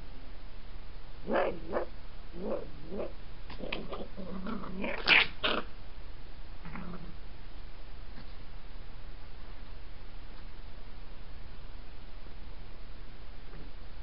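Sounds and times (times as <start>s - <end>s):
foxes squabbling with shrill calls: 1.3s - 5.7s.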